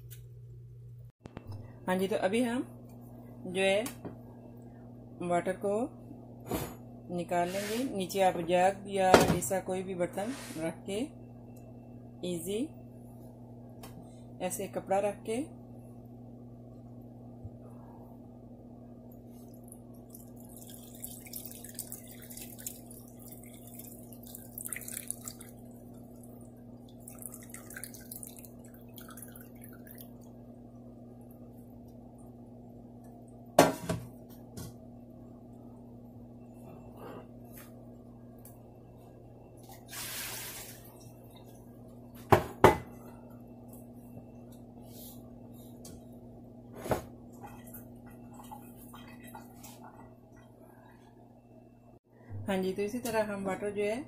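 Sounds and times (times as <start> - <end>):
steady low hum: 0.0 - 54.0
liquid dripping: 19.1 - 30.6
liquid splashing and trickling: 19.2 - 30.3.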